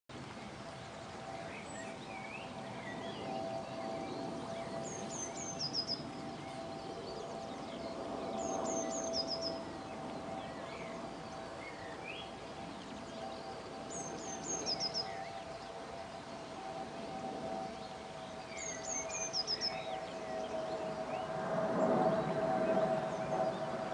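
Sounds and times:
river water flowing: 0.1s - 2.9s
birds chirping: 1.0s - 23.9s.

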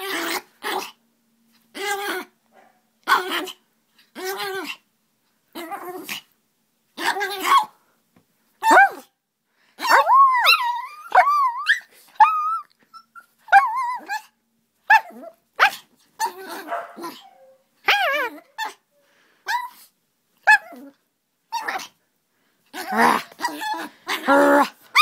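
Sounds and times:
puppy growling: 5.5s - 6.3s, 16.2s - 18.8s, 22.7s - 25.0s
puppy yapping: 14.9s - 18.8s, 22.8s - 25.0s.

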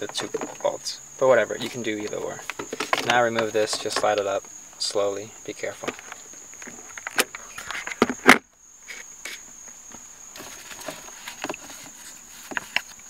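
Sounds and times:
faint high-pitched whine: 0.0s - 13.0s
plastic trim clicks and rustles: 5.8s - 8.4s.

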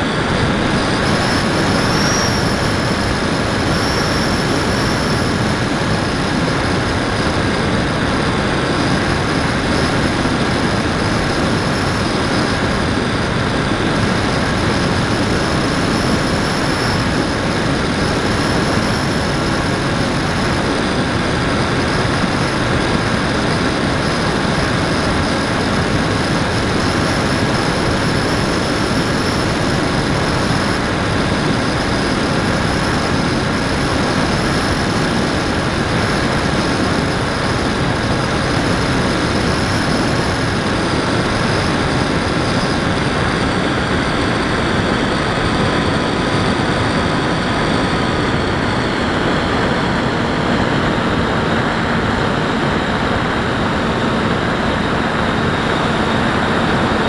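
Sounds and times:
rushing air noise: 0.0s - 57.0s
model plane motor whining: 0.1s - 45.0s.

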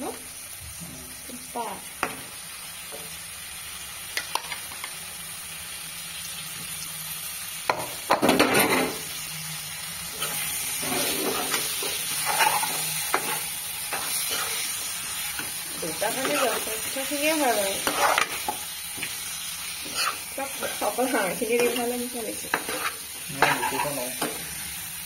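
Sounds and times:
meat sizzling in hot oil: 0.0s - 25.0s
spoon scraping a wok: 10.1s - 24.5s.

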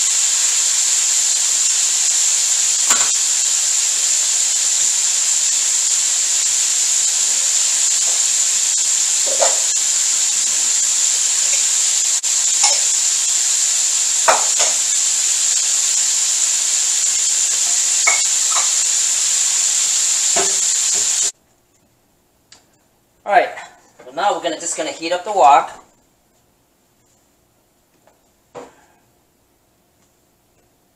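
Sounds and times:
chicken deep-frying in oil: 0.0s - 21.4s
oil popping: 2.7s - 3.4s, 7.2s - 16.2s, 17.4s - 21.3s.

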